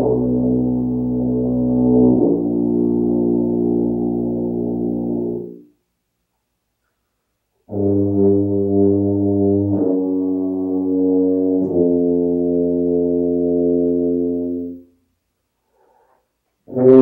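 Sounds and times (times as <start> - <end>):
tuba sustained low notes: 0.0 - 5.7, 7.7 - 15.0, 16.6 - 17.0.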